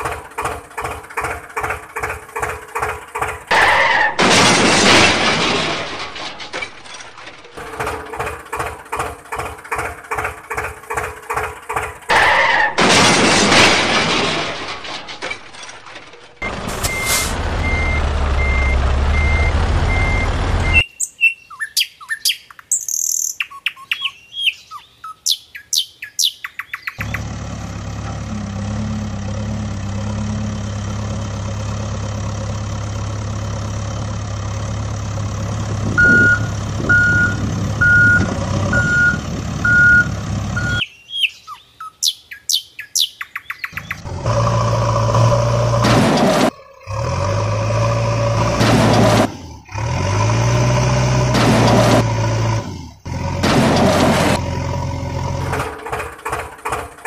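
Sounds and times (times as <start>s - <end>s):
truck engine running: 0.0s - 20.8s, 27.0s - 40.8s, 43.8s - 57.0s
reversing alarm beeping: 16.4s - 20.9s, 36.0s - 40.9s
birds chirping: 19.2s - 27.4s, 36.0s - 45.4s.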